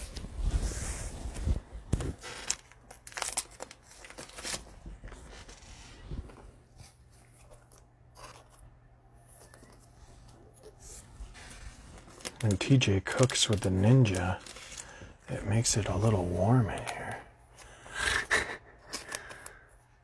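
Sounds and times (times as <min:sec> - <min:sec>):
foil wrapper crinkling and tearing: 0:02.2 - 0:04.8, 0:11.9 - 0:17.2.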